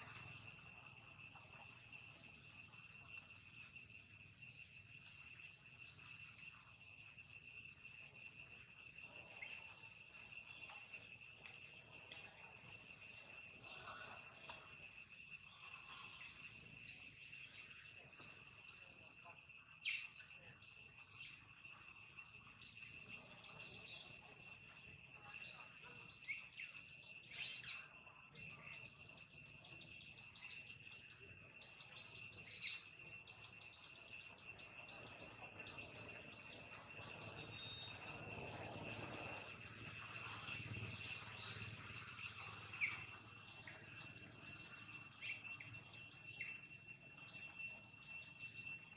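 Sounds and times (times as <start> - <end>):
insect drone: 0.0 - 48.9
pulsing insect trill: 0.0 - 48.9.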